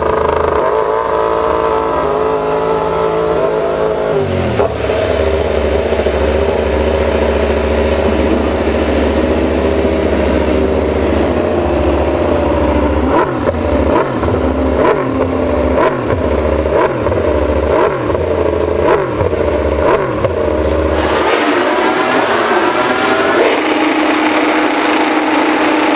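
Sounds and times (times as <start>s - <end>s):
motorcycle engine idling: 0.0s - 21.0s
motorcycle engine revving: 0.0s - 25.9s.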